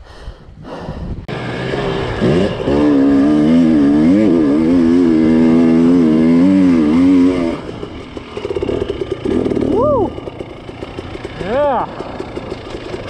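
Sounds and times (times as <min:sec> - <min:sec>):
dirt bike engine revving: 0:01.3 - 0:13.0.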